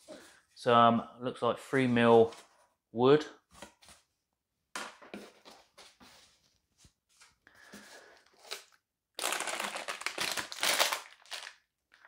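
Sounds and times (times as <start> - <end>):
plastic bag crinkling: 8.4 - 12.0.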